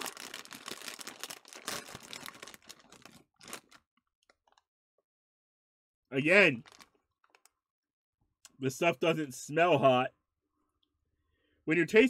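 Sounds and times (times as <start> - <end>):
foil bag crinkling: 0.0 - 3.9, 6.5 - 7.5.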